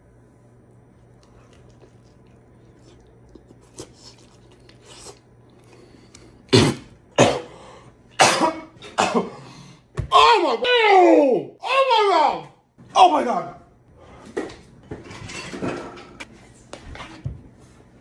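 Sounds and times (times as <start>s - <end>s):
man coughing: 6.5s - 7.6s, 8.2s - 9.5s.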